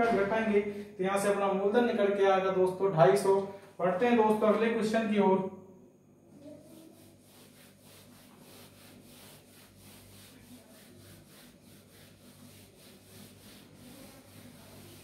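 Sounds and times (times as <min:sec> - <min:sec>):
duster swishing on whiteboard: 0:06.4 - 0:15.0.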